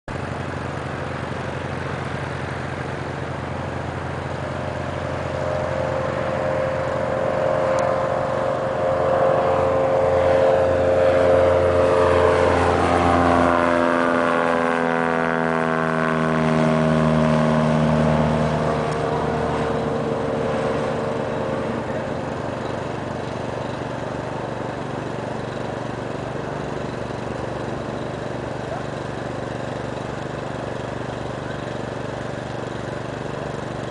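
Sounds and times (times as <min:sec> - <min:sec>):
propeller plane engine: 0:00.1 - 0:33.9.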